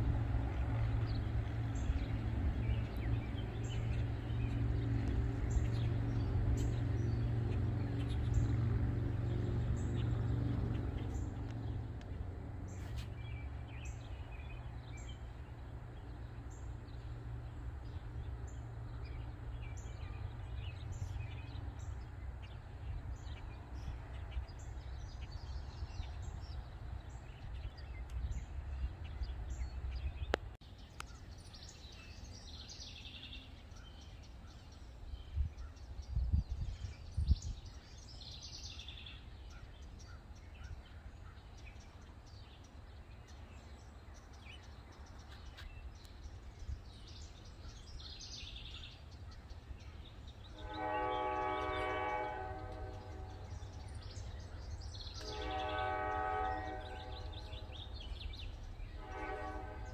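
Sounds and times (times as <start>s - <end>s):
songbirds chirping: 0.0s - 59.9s
click: 30.3s - 31.1s.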